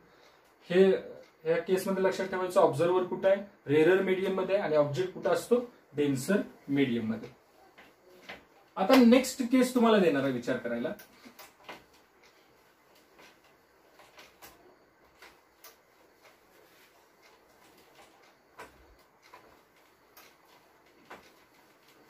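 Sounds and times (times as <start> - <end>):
light clicks and knocks: 10.8 - 22.0.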